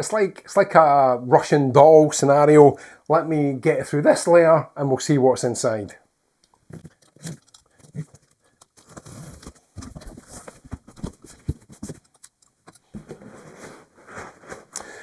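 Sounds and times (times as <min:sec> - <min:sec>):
cardboard flaps scraping and rustling: 0:08.8 - 0:12.1, 0:12.9 - 0:14.8.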